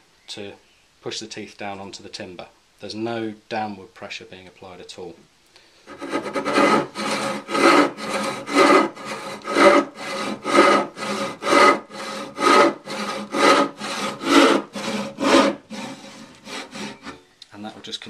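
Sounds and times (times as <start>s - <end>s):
hand saw cutting wood: 5.9s - 17.3s.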